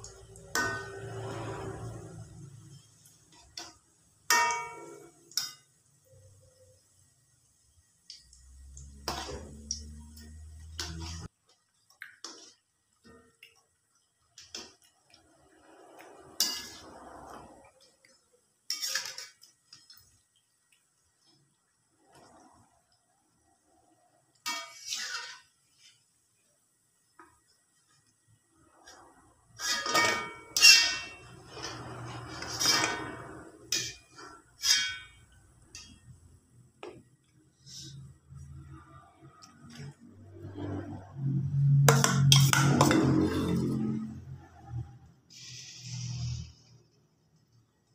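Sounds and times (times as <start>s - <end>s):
spoon scraping metal wok: 0.0s - 6.5s, 8.8s - 11.3s, 15.6s - 17.9s, 18.7s - 20.0s, 24.4s - 26.0s, 28.8s - 36.1s, 39.7s - 46.8s
frying oil: 0.0s - 47.9s
metal spoon clanking on wok: 3.4s - 5.7s, 29.6s - 36.1s, 41.9s - 43.6s.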